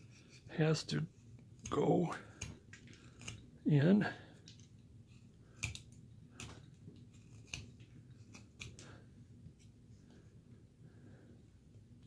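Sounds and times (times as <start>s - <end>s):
knife slicing wood: 1.6s - 3.4s, 5.5s - 8.9s.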